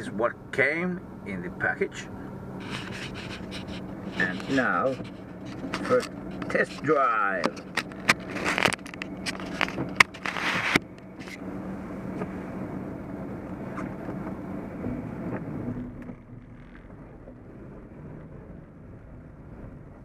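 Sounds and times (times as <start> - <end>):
car engine and road noise: 0.0 - 20.0
sharp clicks and knocks: 2.7 - 11.4.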